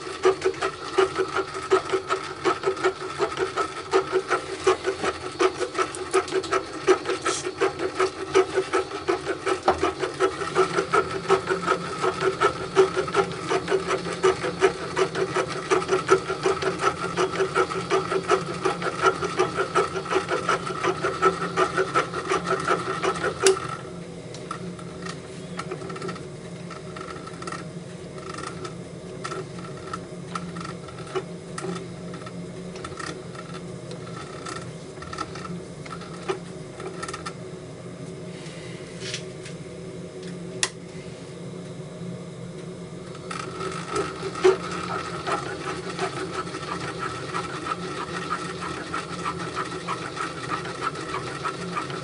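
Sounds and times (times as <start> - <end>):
lathe running hum: 0.0 - 52.0
rhythmic cutting chatter: 43.3 - 52.0.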